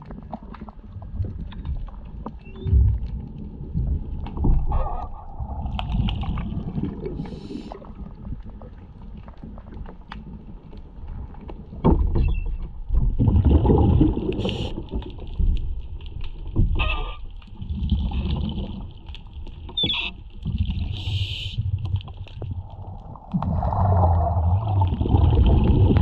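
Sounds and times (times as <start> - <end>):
exhaled bubbles gushing: 2.4 - 8.9, 13.0 - 15.5, 17.6 - 19.1, 20.4 - 26.0.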